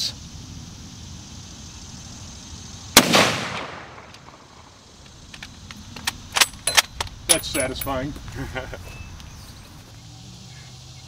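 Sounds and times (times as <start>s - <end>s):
rifle shot: 3.0s - 4.7s.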